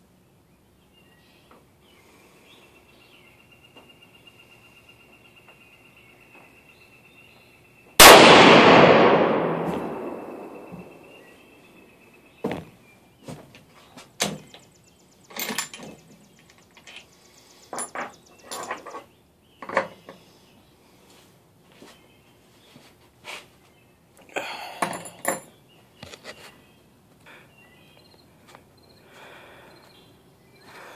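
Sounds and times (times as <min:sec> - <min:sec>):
rifle shot: 0:08.0 - 0:11.2.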